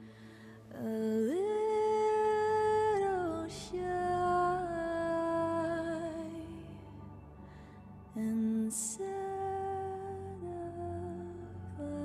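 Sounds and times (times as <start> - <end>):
soft sustained accompaniment: 0.0 - 12.0.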